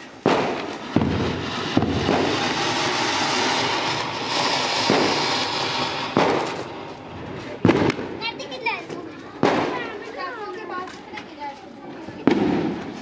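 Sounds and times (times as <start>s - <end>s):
fountain firework hissing: 0.0s - 8.6s
sharp firework cracks: 0.0s - 10.2s, 12.2s - 13.0s.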